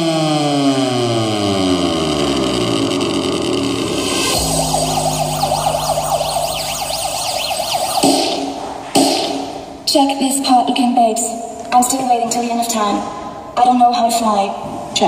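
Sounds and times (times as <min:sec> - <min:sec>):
electronic music from speaker: 0:01.9 - 0:09.8.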